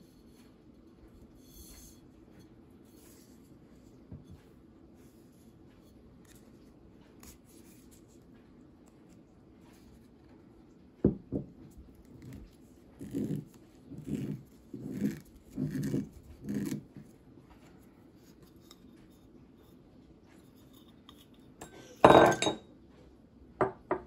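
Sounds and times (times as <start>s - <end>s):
glass bottle knocking on wood: 11.1s - 11.5s, 22.0s - 22.6s.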